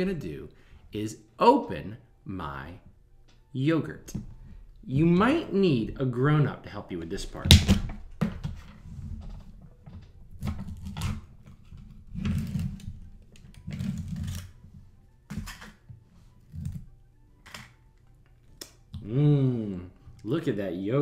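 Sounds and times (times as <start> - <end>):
plastic tub crinkling and scraping: 8.4 - 14.8.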